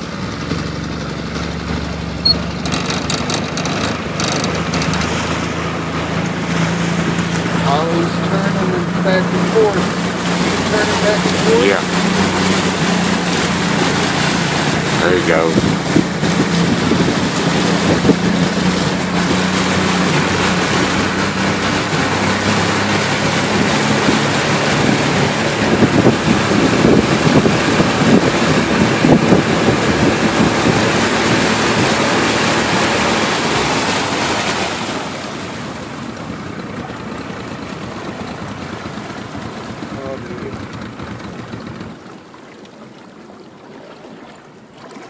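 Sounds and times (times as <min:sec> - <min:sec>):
low boat engine hum: 0:00.0 - 0:45.0
rushing water: 0:00.0 - 0:45.0
wind rushing on microphone: 0:09.8 - 0:34.6.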